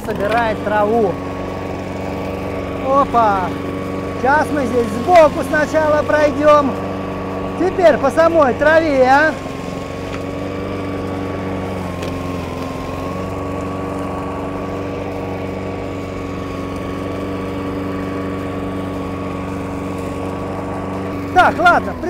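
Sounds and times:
lawn mower running: 0.0s - 22.0s.

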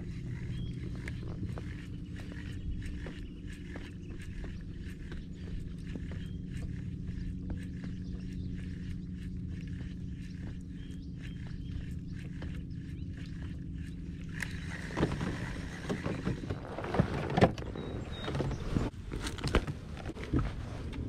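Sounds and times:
fishing reel whirring: 0.0s - 16.3s
gear clicks and knocks: 0.0s - 21.0s.

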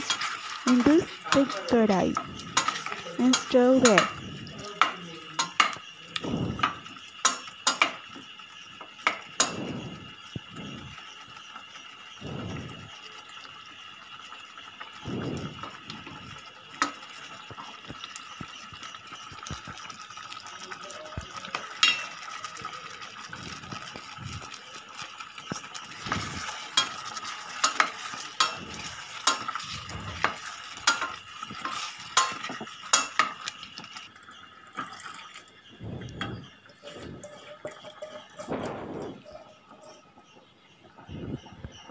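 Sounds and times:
spatula knocking and scraping pot: 0.0s - 5.8s, 26.0s - 33.5s, 36.1s - 40.1s
wooden spatula stirring in a pot: 0.0s - 5.8s, 21.2s - 34.1s, 35.6s - 40.7s.

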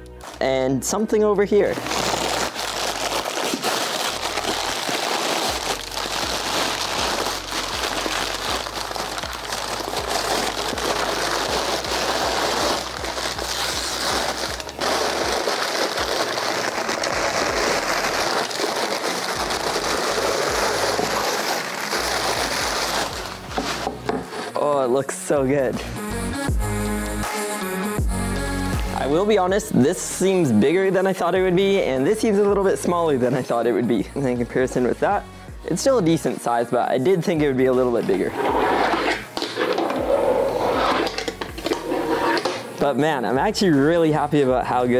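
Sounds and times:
paper tearing and crumpling: 1.6s - 24.7s, 38.1s - 42.6s.

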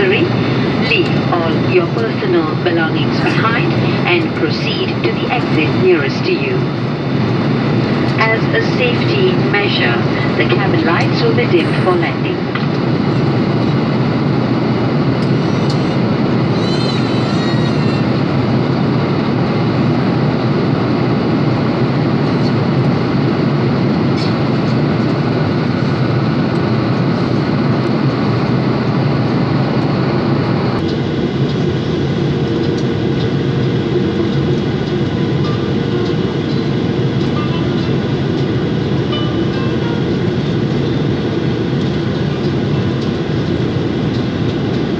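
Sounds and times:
airliner cabin engine hum: 0.0s - 44.9s.

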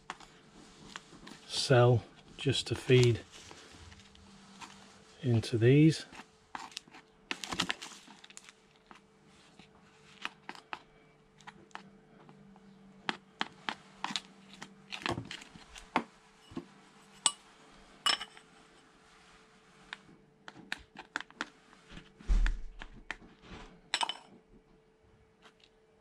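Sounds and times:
heavy low thump: 22.2s - 22.8s.

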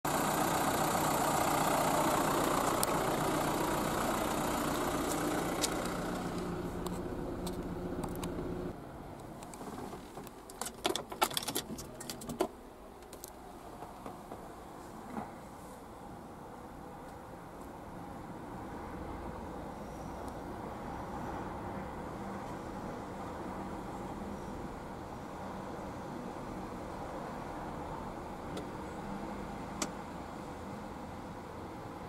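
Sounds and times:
engine idling: 0.1s - 8.8s
keys jingling: 10.6s - 12.4s.

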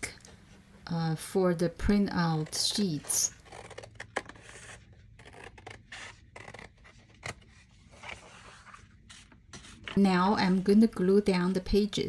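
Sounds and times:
scissors cutting cardboard: 2.3s - 7.5s.

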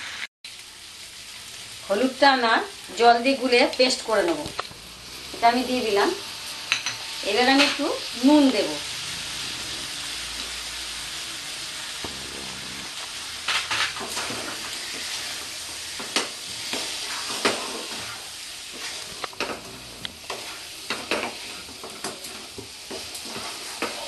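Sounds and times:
food sizzling in oil: 0.0s - 24.0s
wooden spatula scraping pan: 12.0s - 24.0s.

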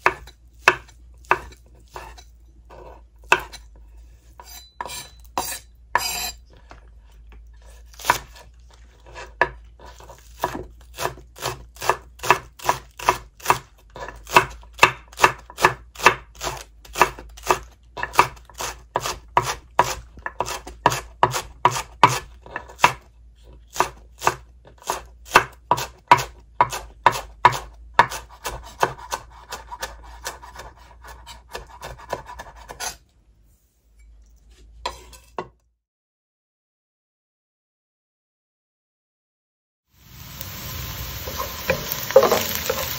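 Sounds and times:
knife chopping on wooden board: 0.0s - 3.6s, 4.4s - 6.3s, 7.6s - 23.1s, 23.7s - 33.0s, 41.2s - 42.9s.

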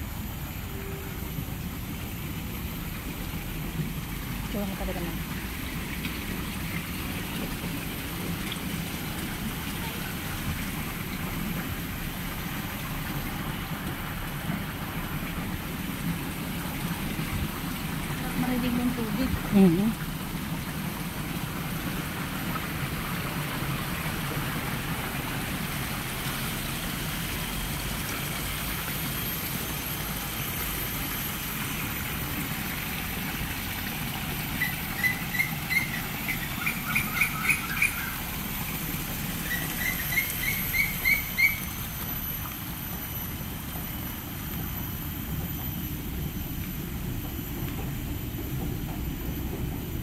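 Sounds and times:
fountain water splashing: 0.0s - 47.4s
bird chirping: 34.6s - 38.2s, 39.4s - 41.7s.

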